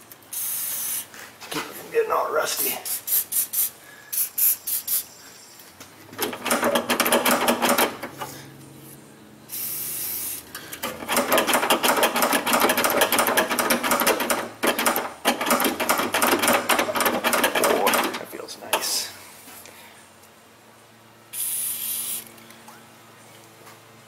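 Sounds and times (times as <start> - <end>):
aerosol spray hissing: 0.3 - 1.1, 2.8 - 5.2, 9.5 - 10.5, 21.3 - 22.3
metal latch rattling: 10.9 - 18.9.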